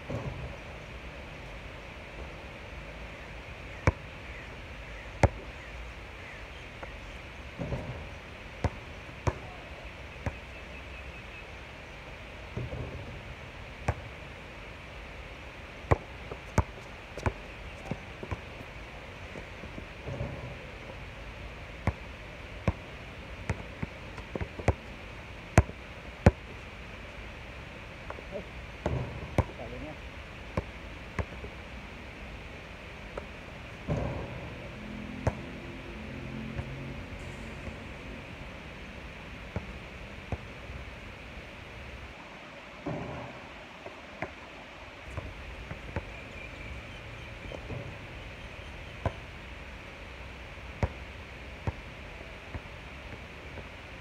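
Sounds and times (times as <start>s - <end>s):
steady background hiss: 0.0s - 54.0s
basketball bouncing on hard court: 8.6s - 9.6s, 15.9s - 18.4s, 28.8s - 29.6s.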